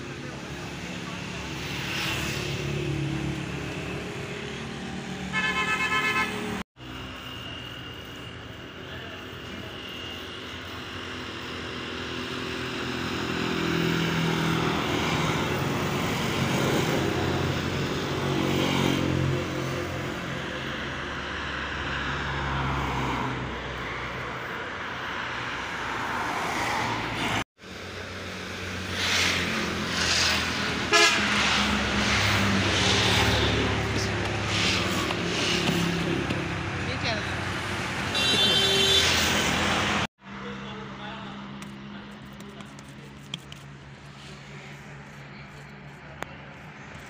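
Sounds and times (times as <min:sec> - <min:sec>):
road traffic: 0:00.0 - 0:47.0.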